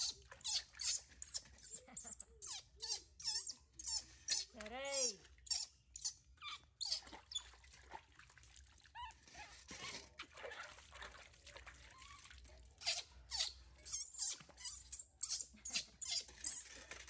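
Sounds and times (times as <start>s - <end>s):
baby monkey squeaking: 0.0s - 7.4s, 12.8s - 16.8s.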